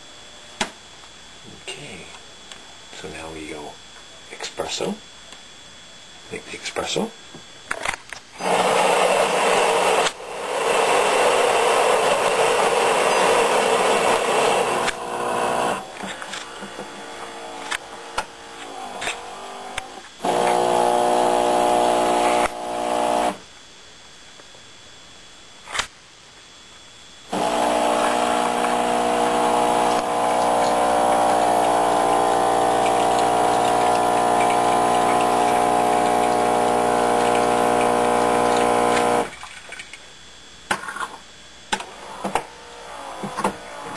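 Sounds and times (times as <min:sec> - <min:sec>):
brew unit whirring and clicking: 0:06.4 - 0:23.5, 0:27.3 - 0:40.1, 0:40.7 - 0:43.9
coffee grinder grinding beans: 0:08.4 - 0:23.4, 0:27.3 - 0:39.3
espresso pump humming: 0:08.4 - 0:23.4, 0:27.3 - 0:39.4.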